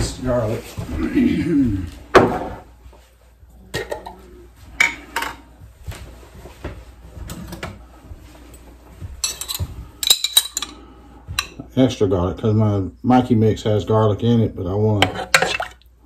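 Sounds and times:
spoon tapping and scraping containers: 9.2s - 11.6s, 15.0s - 15.8s.

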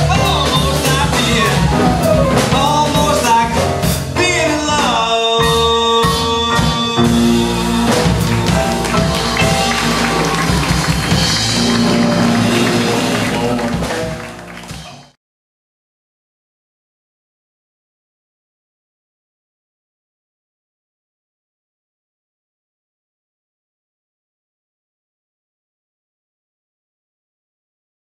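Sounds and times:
man singing: 0.0s - 7.5s
upright double bass: 0.0s - 15.0s
drum kit with cymbals: 0.0s - 15.2s
piano: 0.0s - 15.2s.

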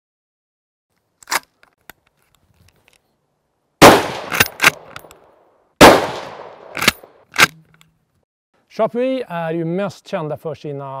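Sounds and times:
rifle shots echoing: 3.8s - 4.9s, 5.8s - 7.2s
rifle bolt clicks: 4.1s - 5.2s, 6.2s - 7.9s.

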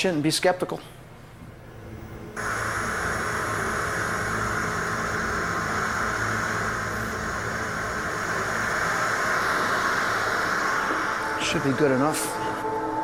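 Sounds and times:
television static hiss: 1.5s - 13.0s.

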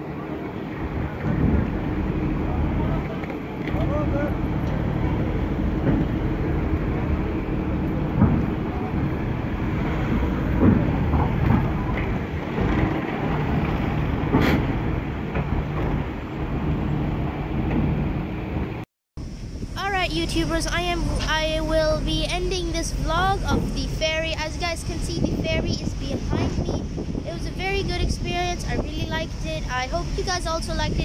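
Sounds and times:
cars driving off: 0.0s - 18.8s
ship engines rumbling: 0.0s - 31.0s
clunks of steel ramp: 1.1s - 18.8s.

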